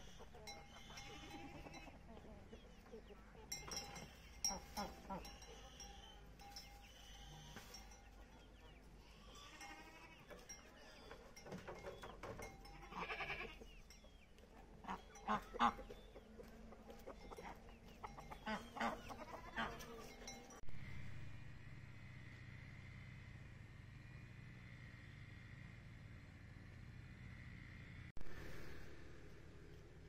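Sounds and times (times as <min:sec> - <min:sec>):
goat bleating: 0:00.1 - 0:02.0, 0:09.0 - 0:10.3, 0:12.6 - 0:13.6, 0:18.2 - 0:20.4.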